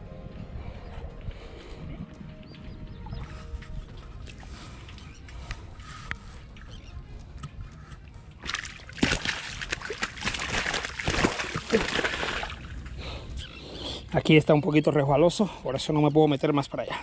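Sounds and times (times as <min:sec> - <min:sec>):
fish thrashing and splashing in water: 0:08.4 - 0:12.8
fish tail slapping water: 0:08.4 - 0:12.9.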